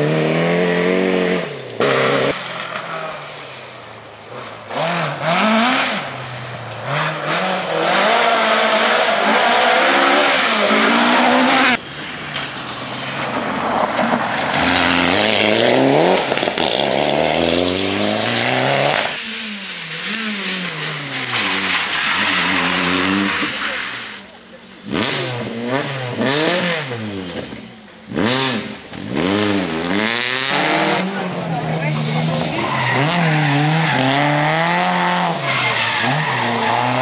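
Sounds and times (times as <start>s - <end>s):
rally car engines revving hard: 0.0s - 3.3s, 4.2s - 37.0s.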